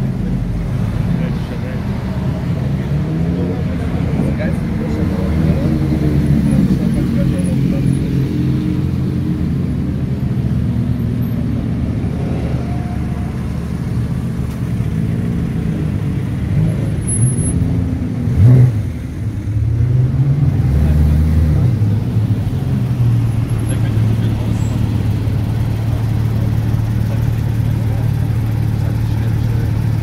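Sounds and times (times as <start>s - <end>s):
car engine pulling up: 12.6s - 19.5s.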